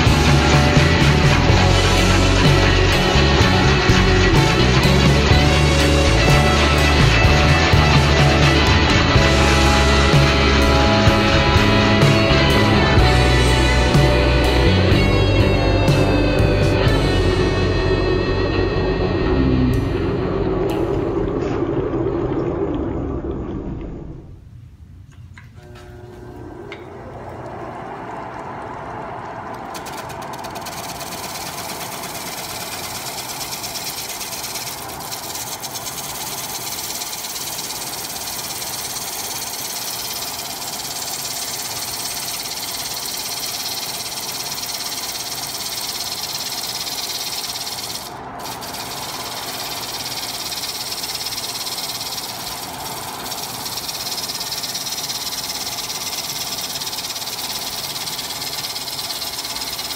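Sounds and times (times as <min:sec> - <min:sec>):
gouge scraping spinning wood: 0:00.0 - 0:14.1, 0:28.5 - 0:59.9
lathe motor hum: 0:00.0 - 0:21.6, 0:25.6 - 0:59.9.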